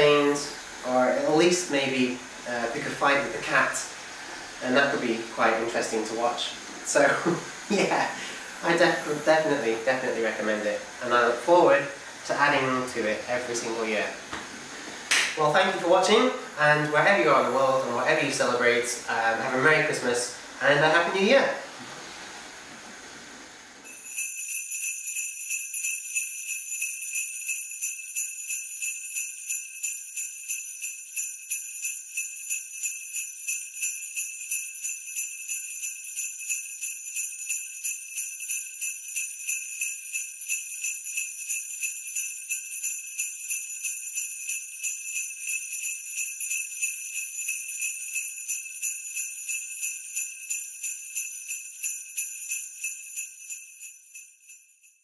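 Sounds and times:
sleigh bells jingling: 0.0 - 14.3, 15.3 - 21.7, 23.8 - 55.0.

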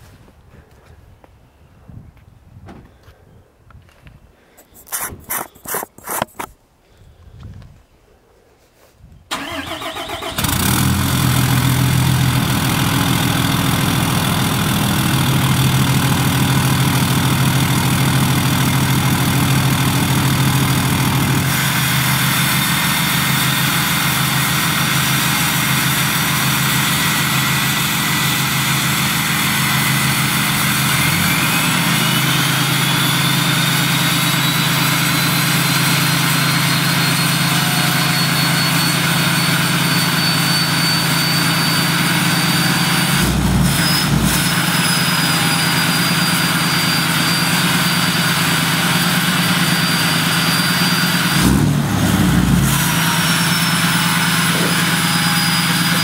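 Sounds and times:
diesel engine idling: 9.3 - 56.0
high turbo whistle: 29.3 - 56.0.

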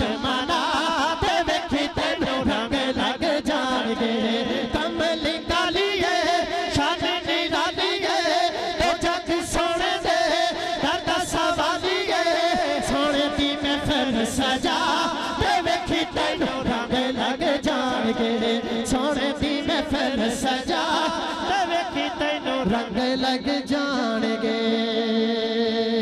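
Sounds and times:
man singing into a microphone: 0.0 - 26.0.

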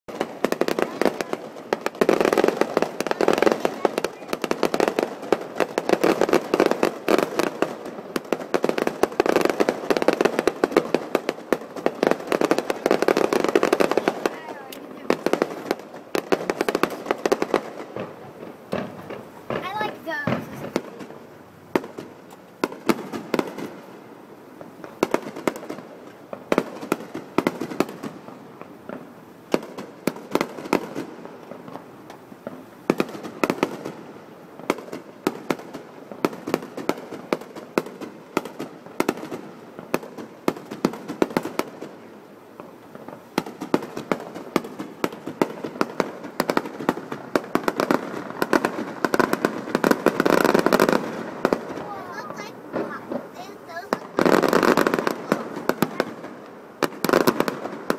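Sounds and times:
fireworks bursts and crackling: 0.1 - 57.9.

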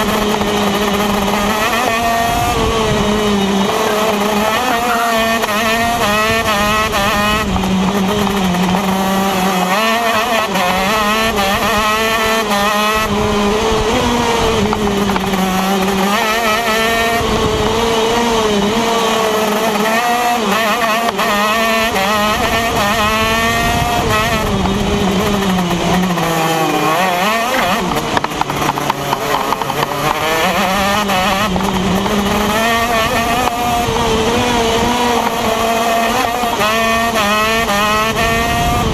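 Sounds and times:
kart engine revving: 0.0 - 38.9.

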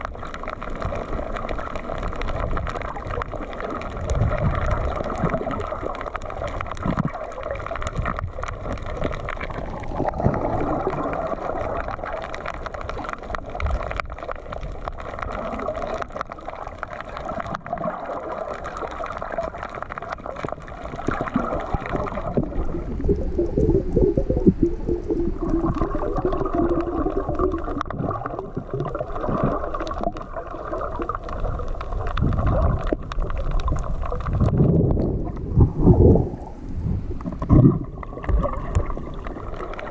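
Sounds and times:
muffled underwater wash: 0.0 - 39.9
small underwater clicks and crackles: 0.0 - 39.9
low wavering rumble: 34.4 - 38.2.

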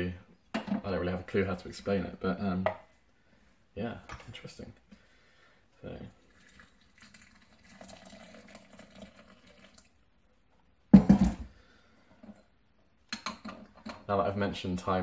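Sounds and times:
hot water pouring into a cup: 5.9 - 10.1
flask set down with a thump: 10.9 - 11.5.

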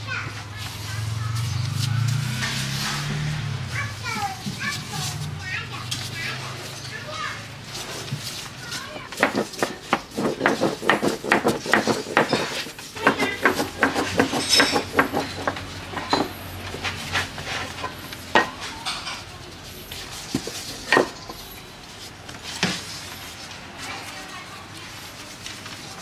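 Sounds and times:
metal utensils clinking on dishes: 11.6 - 19.5.

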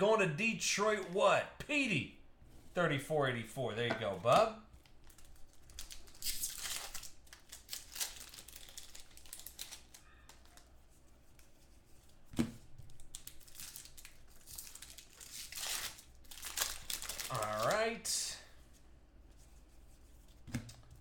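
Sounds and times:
wrapper crinkling and tearing: 4.8 - 10.7, 12.9 - 18.0
cards being flipped: 15.4 - 17.8.

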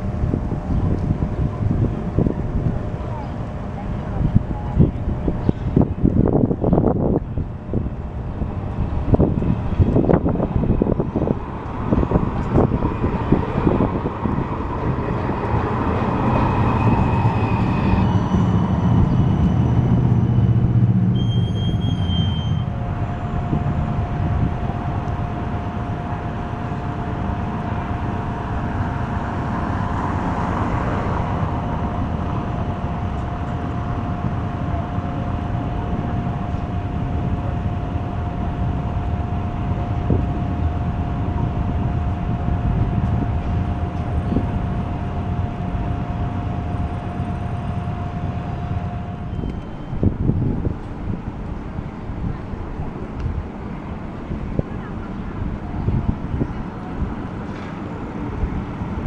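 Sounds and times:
low street rumble: 0.0 - 59.0
tram passing: 0.0 - 59.0.

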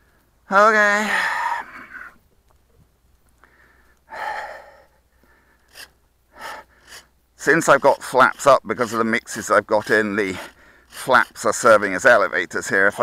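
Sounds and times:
man breathing out: 3.4 - 7.1.

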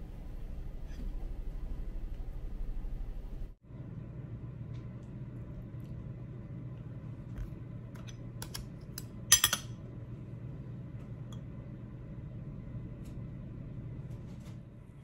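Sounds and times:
low hum: 0.0 - 15.0
cutlery tapping: 8.4 - 9.7.

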